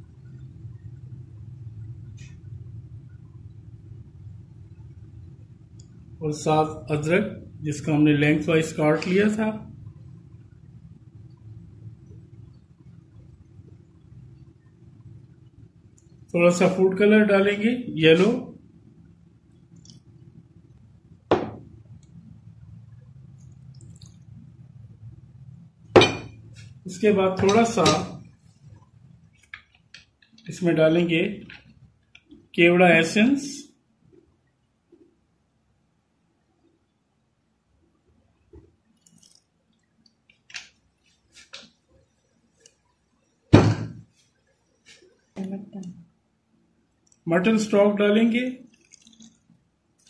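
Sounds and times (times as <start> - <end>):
faint low hum: 0.0 - 50.0
loud sudden thump: 43.5 - 44.0.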